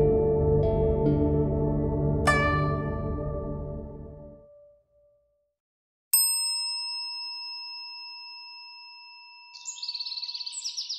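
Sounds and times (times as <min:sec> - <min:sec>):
birds chirping: 0:09.6 - 0:10.9.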